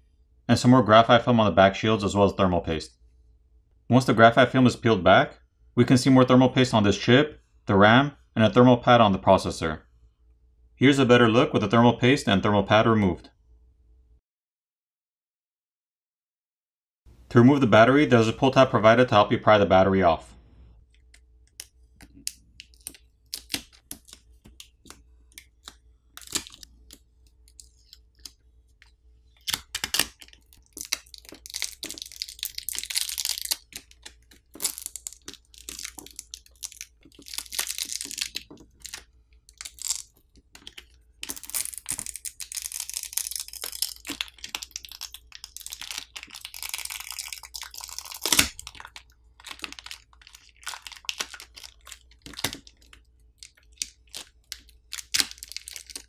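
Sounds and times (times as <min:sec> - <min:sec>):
sticky adhesive tearing: 0:21.6 - 0:27.0, 0:29.4 - 0:48.9.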